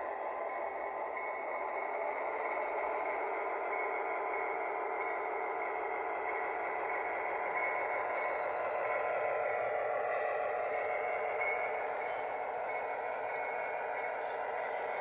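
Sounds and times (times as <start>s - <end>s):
model train hum and rumble: 0.0s - 15.0s.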